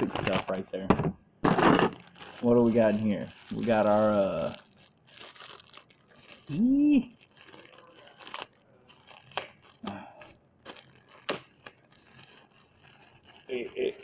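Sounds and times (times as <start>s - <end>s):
packaging crinkling and tearing: 0.0s - 0.8s, 1.4s - 14.0s
person humming: 6.5s - 7.1s.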